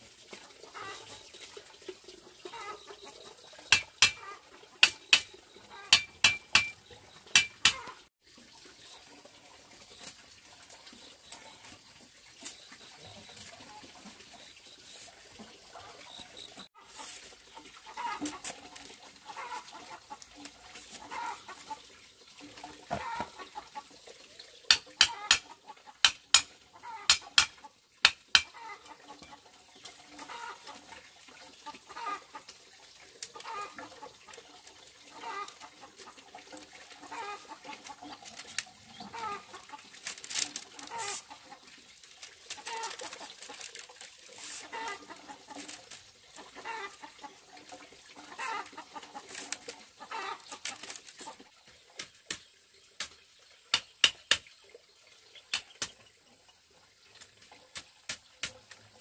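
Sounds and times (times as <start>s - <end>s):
chickens clucking: 2.2s - 8.1s, 12.4s - 24.0s, 24.7s - 27.8s, 28.4s - 32.6s, 33.3s - 41.7s, 42.4s - 51.6s
bamboo strips clacking together: 3.7s - 8.1s, 24.7s - 28.7s, 36.1s - 41.3s, 42.0s - 46.8s, 47.6s - 54.5s, 55.5s - 56.0s, 57.2s - 59.0s.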